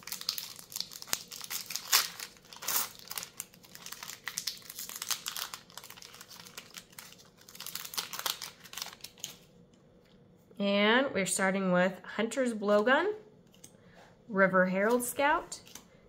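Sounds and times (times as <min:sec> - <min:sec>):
plastic wrapper crinkling: 0:00.0 - 0:09.5.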